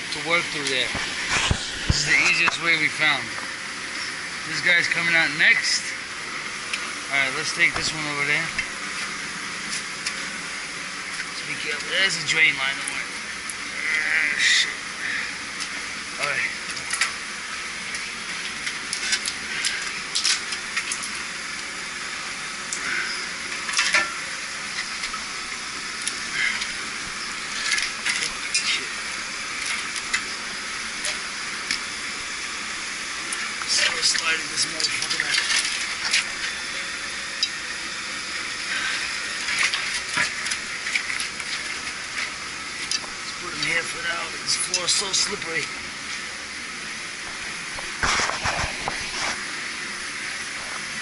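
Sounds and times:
steady hiss: 0.0s - 51.0s
compressor scraping on concrete floor: 0.9s - 2.6s, 47.2s - 49.5s.

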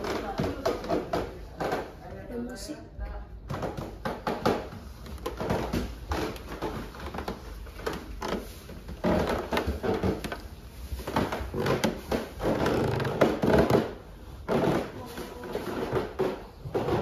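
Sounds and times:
footsteps on wooden stairs: 3.5s - 17.0s.

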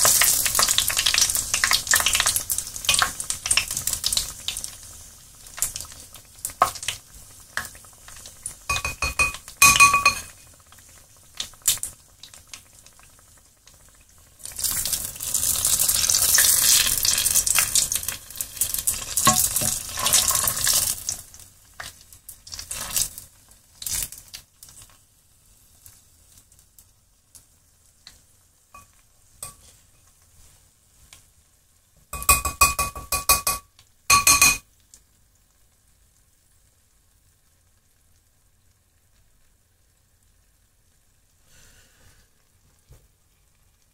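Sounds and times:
batter sizzling and bubbling in oil: 0.0s - 43.9s
metal utensil knocking against pan: 8.7s - 10.4s, 19.3s - 19.8s, 32.2s - 34.6s.

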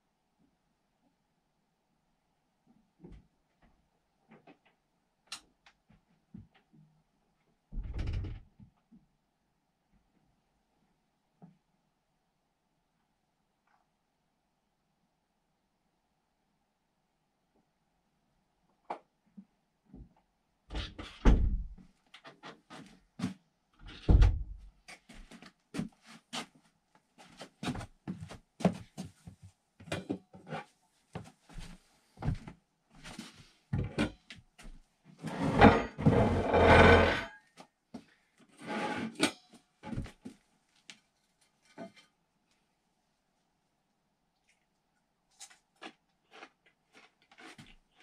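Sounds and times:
rustling and scraping: 34.7s - 37.4s.

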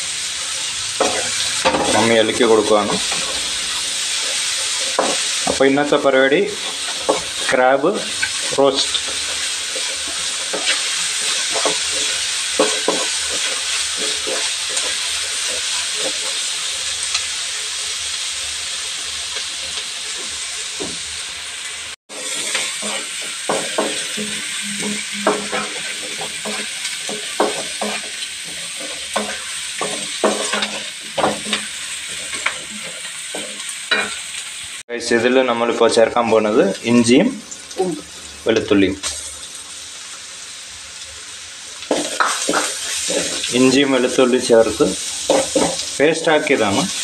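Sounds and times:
onions sizzling in hot oil: 0.0s - 47.0s
spoon scraping and knocking pan: 1.0s - 17.2s, 22.1s - 34.4s, 41.9s - 44.4s, 45.0s - 46.9s.

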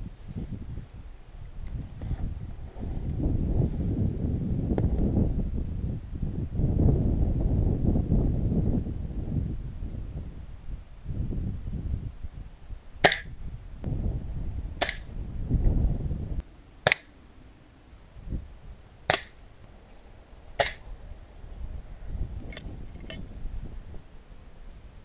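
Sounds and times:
air pistol shots: 13.0s - 13.3s, 14.8s - 15.1s, 16.8s - 17.2s, 19.1s - 19.4s, 20.6s - 20.8s.

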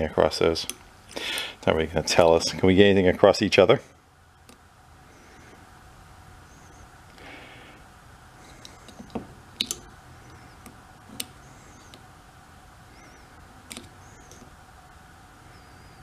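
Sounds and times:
test probes clicking on metal: 8.6s - 12.0s, 13.7s - 14.5s.

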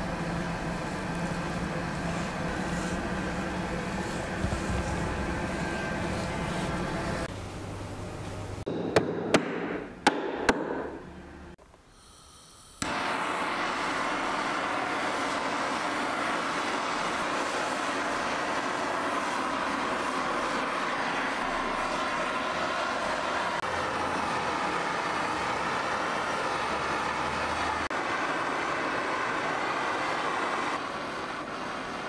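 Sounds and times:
butane torch hissing: 0.0s - 7.3s, 11.8s - 32.0s
sharp knocks: 8.7s - 11.0s.

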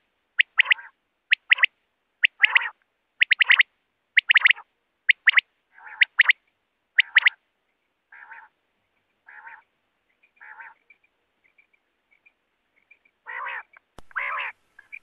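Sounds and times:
quail calling: 0.4s - 6.4s, 7.0s - 7.4s, 8.1s - 8.6s, 9.2s - 11.0s, 13.2s - 15.0s
sharp click: 14.0s - 14.2s.

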